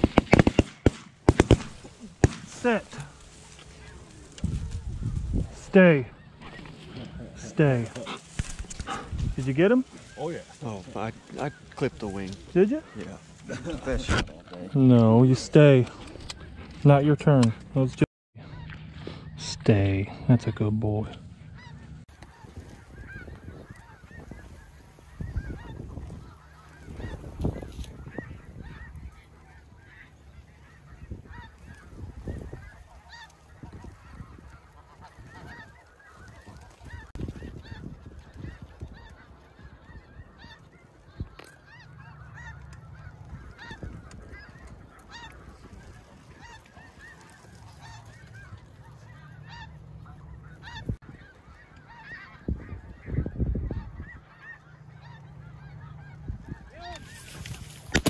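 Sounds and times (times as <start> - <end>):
geese honking: 0.0 - 15.5, 18.4 - 58.0
wind on microphone: 4.4 - 5.7, 8.4 - 9.4, 22.3 - 29.3, 30.9 - 40.5, 42.4 - 48.7, 52.4 - 54.2, 56.1 - 58.0.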